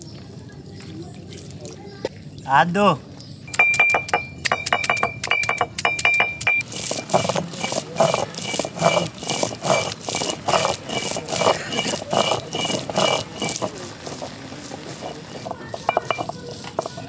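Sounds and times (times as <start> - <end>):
metal utensils clinking: 3.5 - 17.0
rhythmic metal scraping: 3.5 - 17.0.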